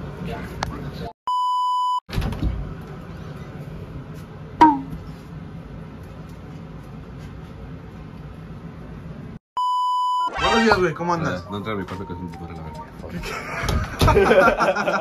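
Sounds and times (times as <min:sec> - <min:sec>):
steady test-tone beep: 0:09.6 - 0:10.8.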